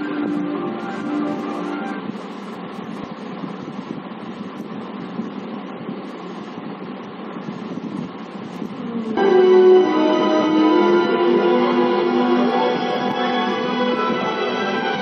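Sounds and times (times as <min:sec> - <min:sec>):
film music: 0:00.0 - 0:02.1, 0:09.2 - 0:15.0
rushing wind-like noise: 0:00.0 - 0:15.0.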